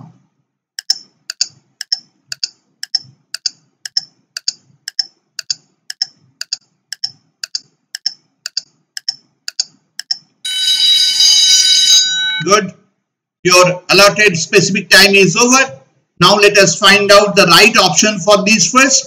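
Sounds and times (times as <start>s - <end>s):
clock ticking: 0.8s - 10.4s.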